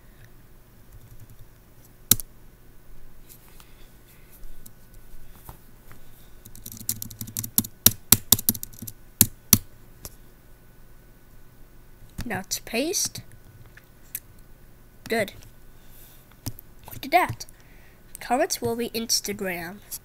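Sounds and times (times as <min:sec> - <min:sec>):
keyboard keys clicking: 0:06.5 - 0:08.9.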